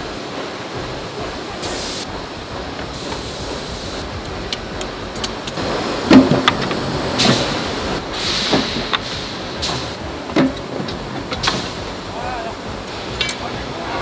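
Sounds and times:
machinery hiss and hum: 0.0s - 14.0s
loud metal clank: 4.2s - 12.1s.

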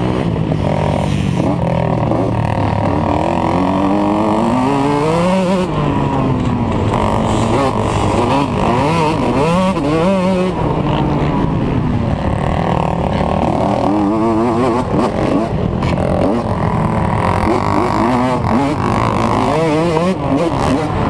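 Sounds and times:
dirt bike engine revving: 0.0s - 21.0s
wind rushing over microphone: 4.8s - 19.2s.

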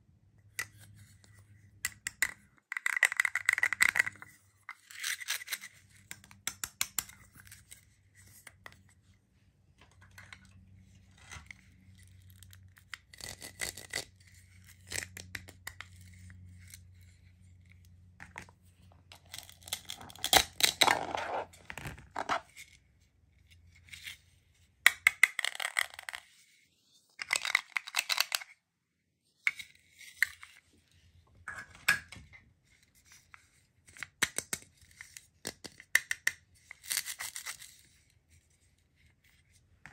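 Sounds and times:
plastic pieces clicking: 1.9s - 4.2s, 27.2s - 28.5s.

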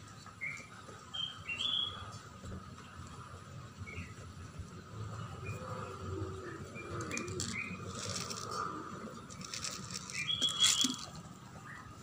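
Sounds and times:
kibble rattling onto tiled floor: 7.0s - 8.6s, 9.3s - 11.2s.

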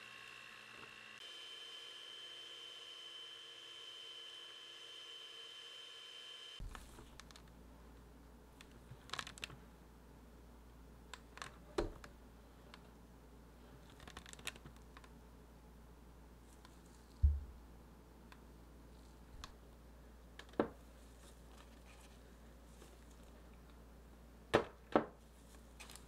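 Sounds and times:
dull thump: 17.2s - 17.6s.

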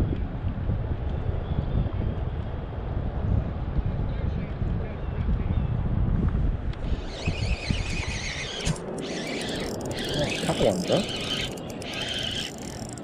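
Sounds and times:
wind rumbling on microphone: 0.0s - 13.0s
fishing reel drag squealing: 6.8s - 13.0s.

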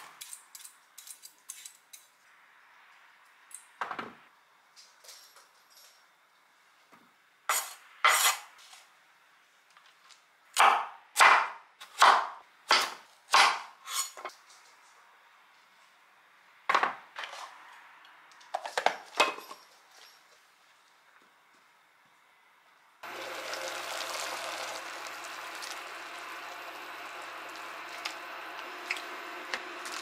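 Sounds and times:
knife chopping on wooden board: 10.6s - 13.7s.

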